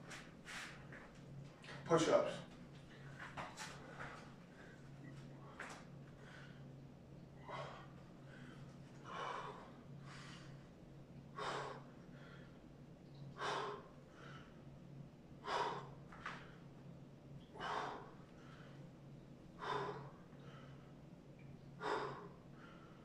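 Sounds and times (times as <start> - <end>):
faint low hum: 0.0 - 23.0
man breathing hard: 0.1 - 1.0, 3.6 - 6.8, 7.4 - 12.6, 13.3 - 14.7, 15.4 - 16.8, 17.4 - 18.9, 19.5 - 21.0, 21.8 - 23.0.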